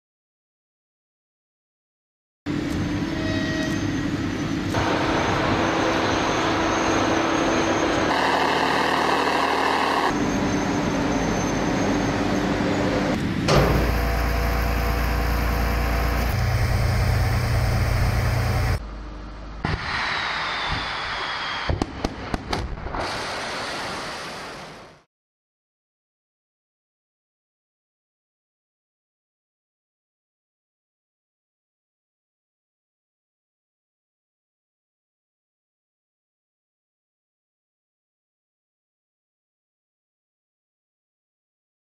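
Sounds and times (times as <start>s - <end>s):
heavy low rumble: 13.5s - 20.0s.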